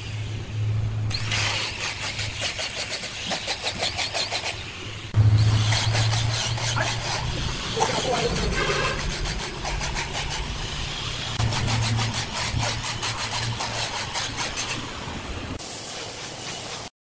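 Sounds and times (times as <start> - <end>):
low machine hum: 4.7 - 14.0
wood scraping and rubbing: 5.2 - 10.8, 11.4 - 15.0
even hiss: 15.6 - 16.9.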